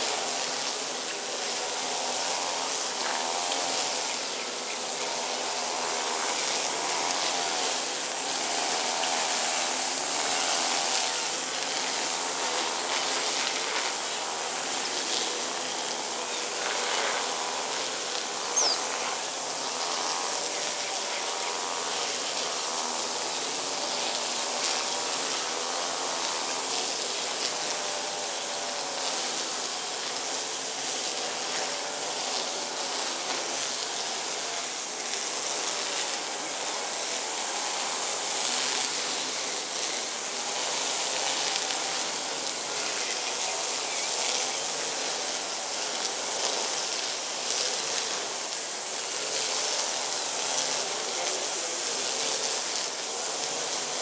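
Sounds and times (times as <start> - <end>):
steady outdoor hiss: 0.0 - 54.0
faint wavering hum: 18.5 - 19.2.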